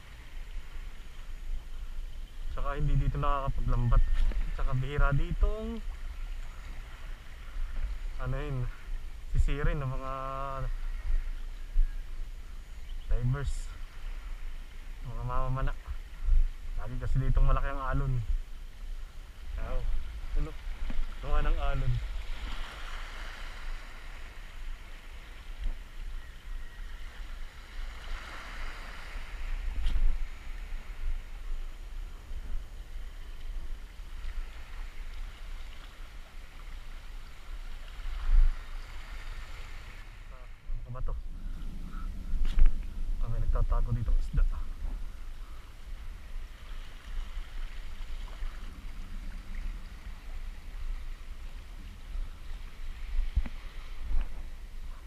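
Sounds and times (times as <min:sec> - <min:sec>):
sea waves on rocky shore: 0:00.0 - 0:55.0
wind rumble on microphone: 0:00.0 - 0:55.0
sea water washing over rocks: 0:19.3 - 0:26.1, 0:27.0 - 0:40.3.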